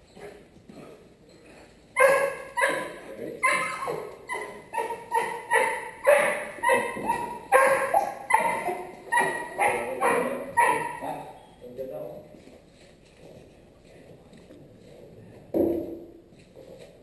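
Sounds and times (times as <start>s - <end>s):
puppy barking: 2.0s - 11.4s.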